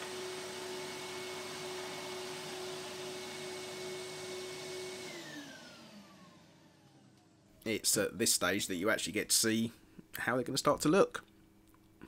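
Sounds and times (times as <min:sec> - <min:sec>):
belt sander motor whine: 0:00.0 - 0:07.3.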